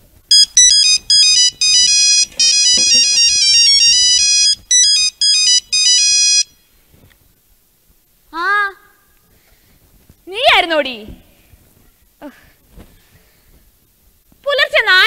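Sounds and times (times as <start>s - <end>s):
phone ringtone beeping melody: 0.3s - 6.5s.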